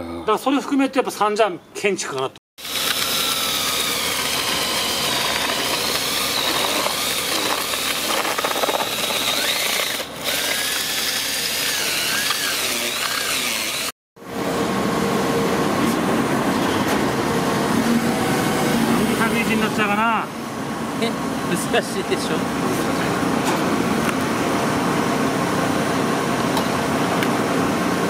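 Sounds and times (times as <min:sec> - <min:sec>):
electric drill mixer whine: 0:02.6 - 0:14.0.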